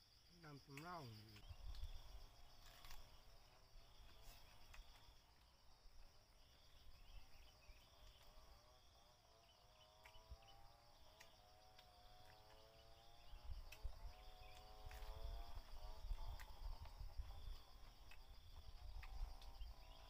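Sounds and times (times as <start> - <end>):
insect chirring: 0.0 - 20.0
wind rumble on microphone: 13.2 - 20.0.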